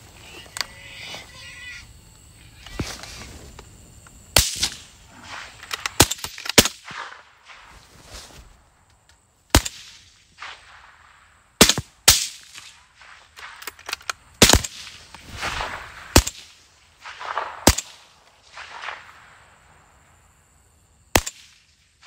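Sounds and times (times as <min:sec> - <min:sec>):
suppressed rifle shots: 0:04.3 - 0:07.7, 0:09.5 - 0:19.3, 0:21.1 - 0:21.7.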